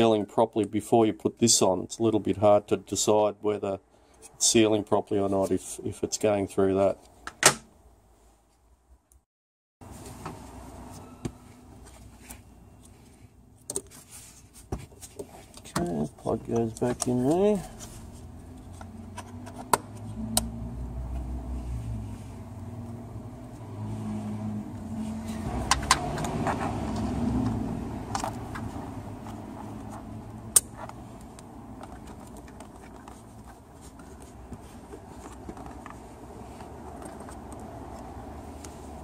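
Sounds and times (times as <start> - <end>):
hands handling and rustling: 9.8 - 20.0, 25.0 - 39.0.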